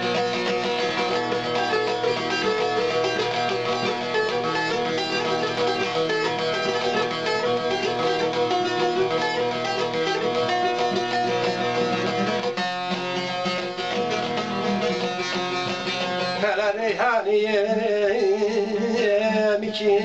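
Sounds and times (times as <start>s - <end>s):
long-necked lute plucked: 0.0s - 20.0s
man singing: 16.2s - 20.0s.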